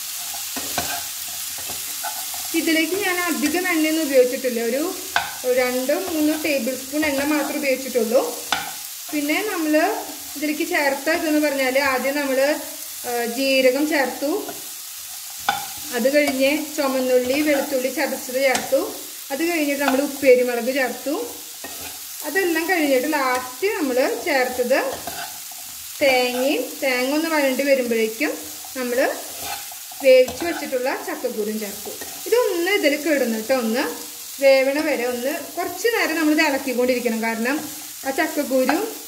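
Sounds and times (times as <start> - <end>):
spatula scraping a pan: 0.0 - 2.6, 8.4 - 9.2, 14.4 - 16.5, 21.3 - 22.2, 23.0 - 26.8, 28.4 - 30.8, 31.8 - 32.4
seeds sizzling in a pan: 0.0 - 39.0.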